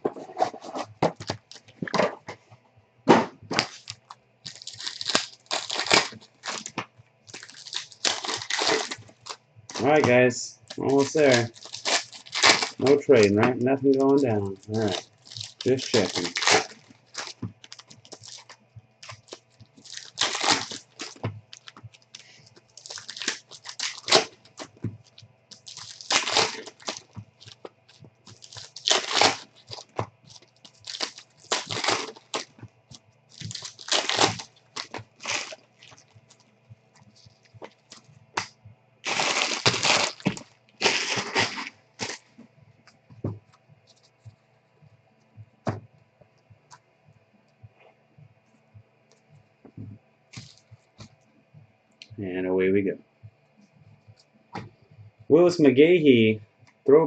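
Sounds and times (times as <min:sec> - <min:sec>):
foil wrappers tearing and crinkling: 0:01.2 - 0:01.7, 0:03.5 - 0:42.3, 0:50.4 - 0:50.7.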